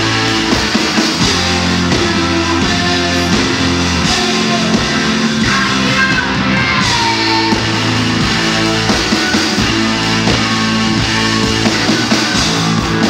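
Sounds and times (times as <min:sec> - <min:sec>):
bass guitar: 0:00.0 - 0:13.0
distorted electric guitars: 0:00.0 - 0:13.0
drums: 0:00.0 - 0:13.0.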